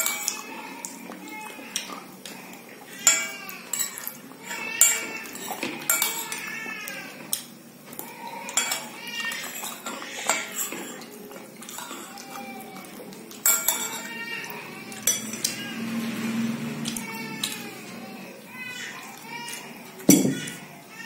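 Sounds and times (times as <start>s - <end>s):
metal spoon scraping glass bowl: 3.1s - 6.5s, 13.4s - 14.1s, 15.0s - 15.6s.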